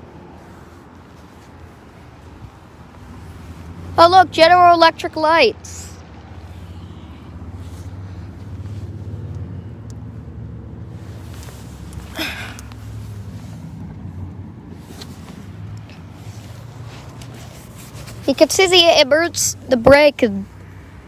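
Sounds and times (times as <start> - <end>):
low engine hum: 0.0 - 21.0.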